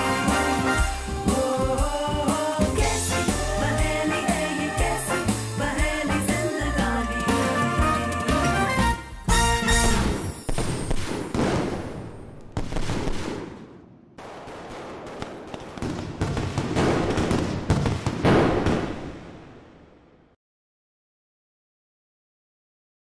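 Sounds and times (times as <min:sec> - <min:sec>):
fireworks bangs with echo: 0:09.8 - 0:20.2.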